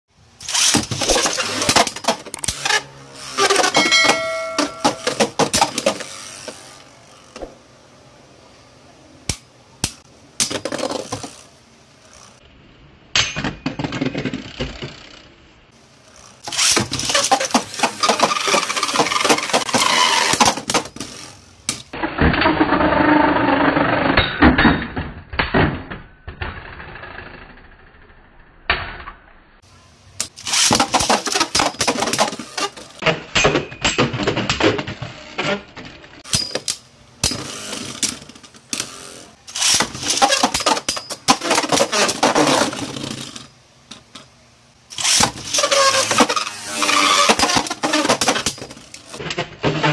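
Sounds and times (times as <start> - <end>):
tops spinning: 16.0 - 24.0.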